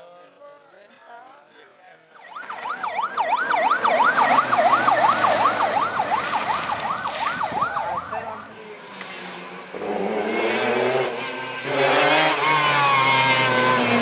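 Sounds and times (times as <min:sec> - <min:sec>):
siren wailing: 0:02.2 - 0:08.4, 0:11.6 - 0:14.0.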